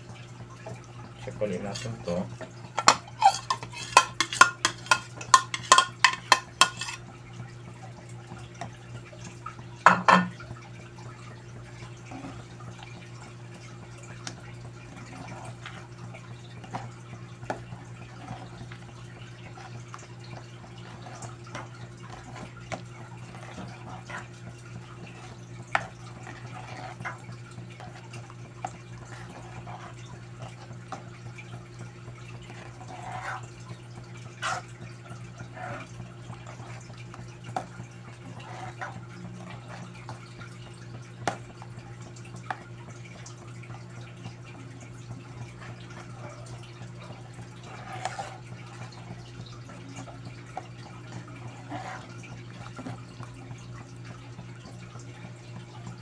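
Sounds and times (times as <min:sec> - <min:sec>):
porridge bubbling in a pot: 0:00.0 - 0:56.0
metal ladle clattering on pot: 0:02.8 - 0:07.0, 0:09.9 - 0:10.4.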